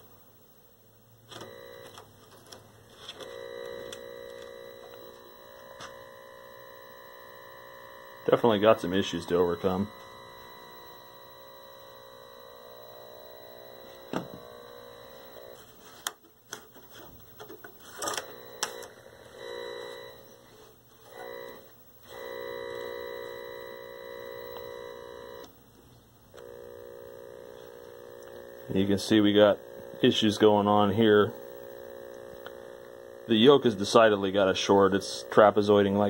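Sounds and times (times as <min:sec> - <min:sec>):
television tube buzz: 0:01.3 - 0:15.8, 0:17.9 - 0:25.6, 0:26.3 - 0:36.0.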